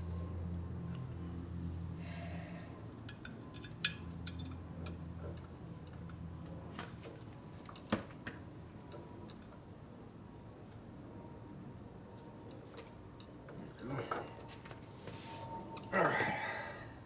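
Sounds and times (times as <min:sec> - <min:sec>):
low steady hum: 0:00.0 - 0:17.0
wire tapping on metal parts: 0:02.9 - 0:09.6.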